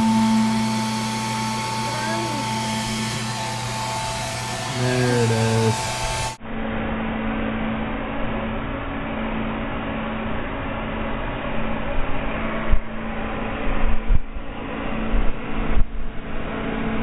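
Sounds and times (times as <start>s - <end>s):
hair dryer running: 0.0s - 6.4s.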